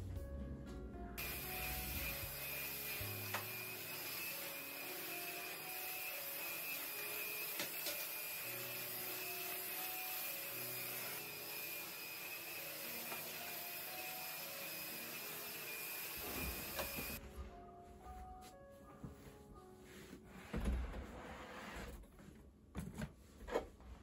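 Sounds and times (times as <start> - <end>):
stick vacuum cleaner running: 1.2 - 17.2.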